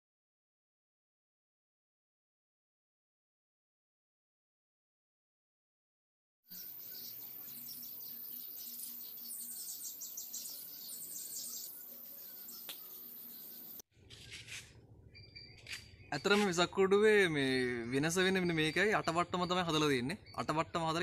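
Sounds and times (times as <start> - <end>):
faint insect hum: 6.5 - 13.8
small birds chirping: 6.5 - 13.8, 15.1 - 21.0.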